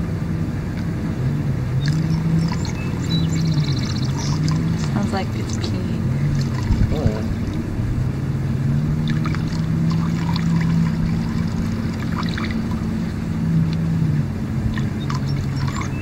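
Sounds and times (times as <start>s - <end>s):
engine droning: 0.0s - 16.0s
liquid trickling into bucket: 1.8s - 5.6s, 6.2s - 7.6s, 8.9s - 13.0s, 14.7s - 16.0s.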